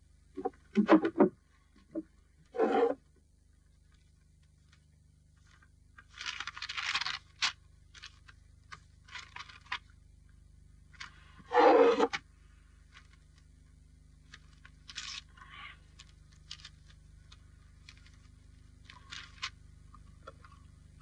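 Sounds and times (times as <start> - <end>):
steady low hum: 0.0 - 21.0
paper rustling and scraping: 5.4 - 10.0, 11.0 - 12.2, 14.2 - 19.6.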